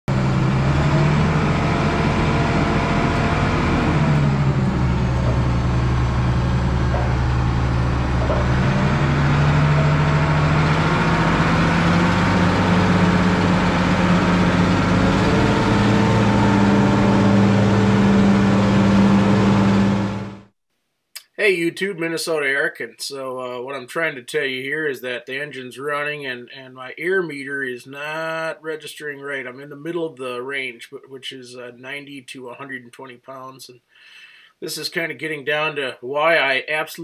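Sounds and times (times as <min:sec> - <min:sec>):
wheel loader engine running: 0:00.1 - 0:20.5.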